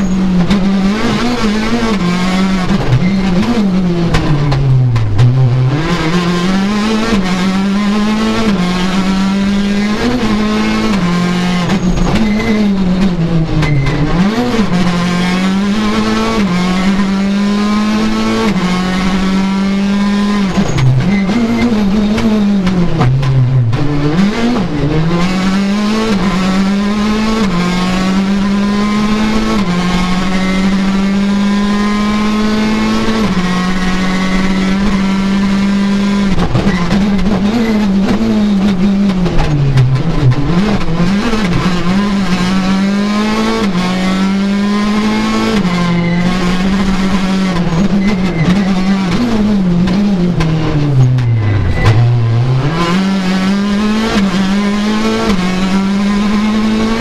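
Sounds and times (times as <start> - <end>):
rally car engine at full throttle: 0.0 - 57.0.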